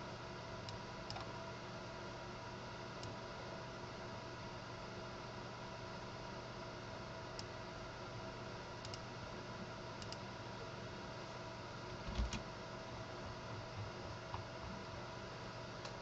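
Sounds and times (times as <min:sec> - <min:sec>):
electrical hum: 0:00.0 - 0:16.0
keyboard and mouse clicks: 0:08.8 - 0:09.0.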